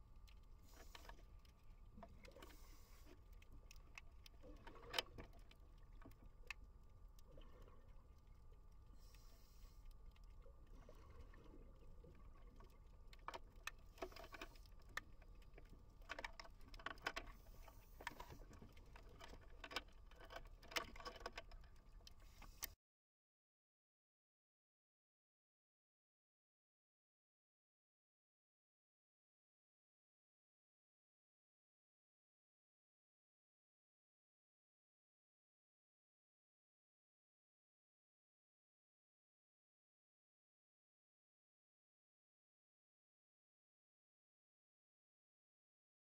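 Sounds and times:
faint low underwater rumble: 0.0 - 22.7
sharp clicks and crackles: 0.2 - 22.8.

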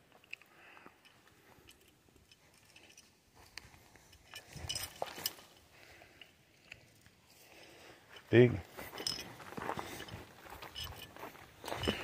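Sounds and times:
footsteps through dry brush: 3.1 - 6.1, 7.2 - 12.0.

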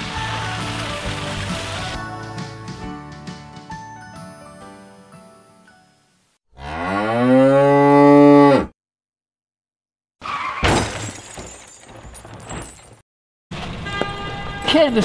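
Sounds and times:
music: 0.0 - 6.4
cow mooing: 6.5 - 8.7.

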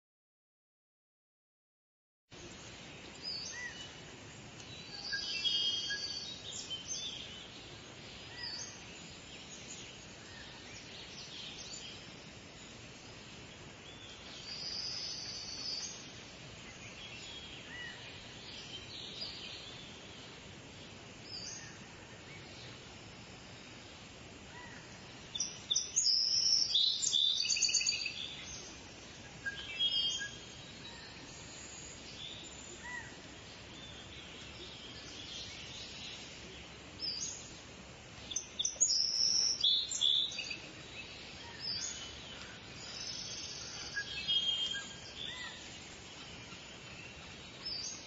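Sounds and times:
steady outdoor hiss: 2.3 - 48.0
small birds chirping: 2.4 - 48.0.

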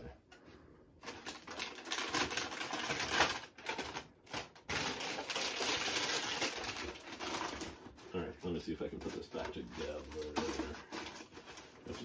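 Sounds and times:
packaging rustling and clattering: 1.0 - 12.0.

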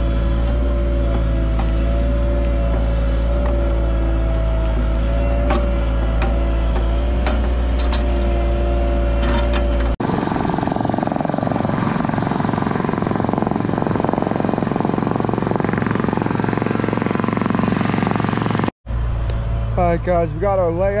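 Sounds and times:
diesel engine running: 0.0 - 21.0
trench rammer pounding: 10.0 - 18.8.

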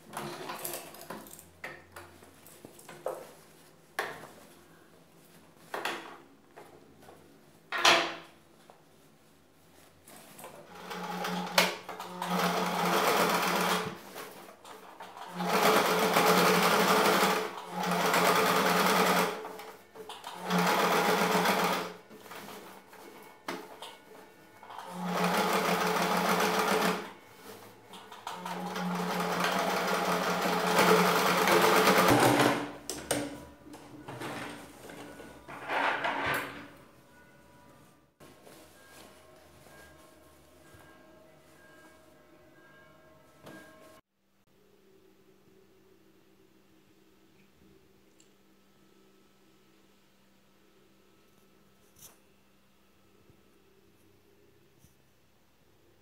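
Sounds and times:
sewing machine stitching: 10.6 - 14.1, 14.8 - 22.4, 24.7 - 27.1, 28.0 - 32.8.

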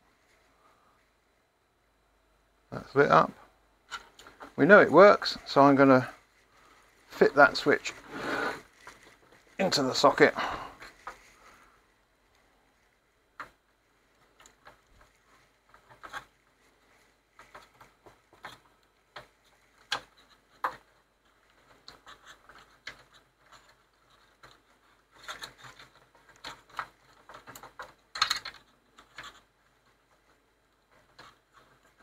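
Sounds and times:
small clicks taps and scrapes: 3.9 - 4.6, 12.3 - 32.0
clatter of parts: 14.2 - 32.0.

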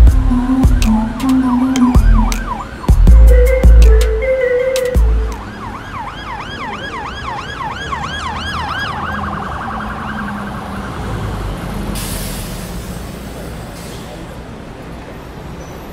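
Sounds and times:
deep bass hit: 0.0 - 1.1, 2.0 - 4.0
emergency siren yelping: 0.0 - 11.1.

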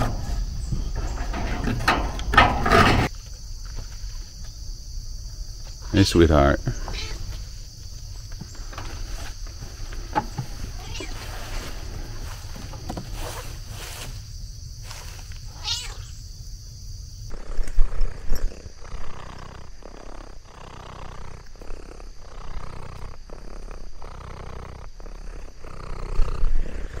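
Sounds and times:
low thumps: 0.0 - 3.1
cat purring: 17.3 - 27.0.

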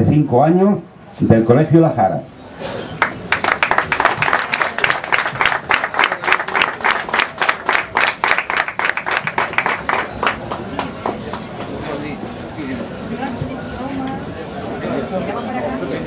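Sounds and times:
people applauding: 2.8 - 11.6.

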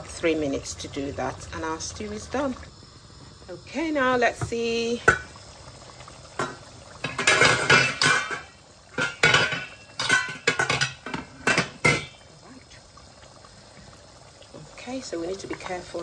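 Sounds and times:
metal cookware clinking and clattering: 6.4 - 12.2.

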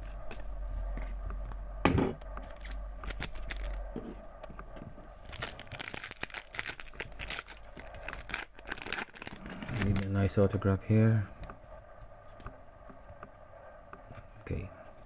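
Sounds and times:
foil wrapper crinkling and tearing: 2.6 - 3.8, 5.2 - 10.3.

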